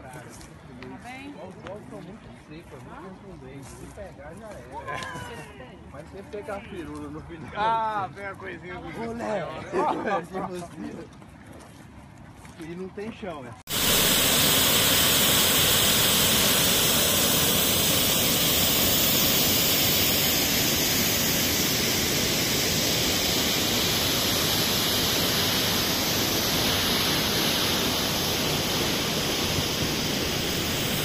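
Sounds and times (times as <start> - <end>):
waterfall rushing: 13.7 - 31.0.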